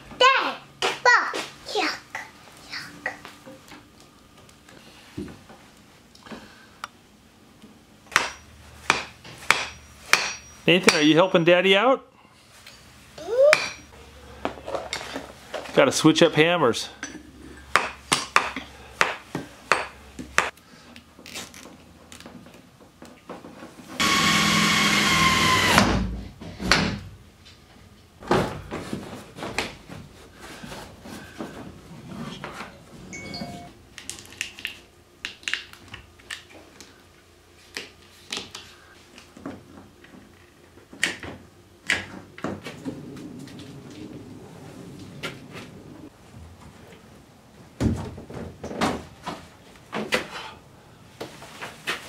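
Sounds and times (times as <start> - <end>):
power tool running: 24.0 - 26.0.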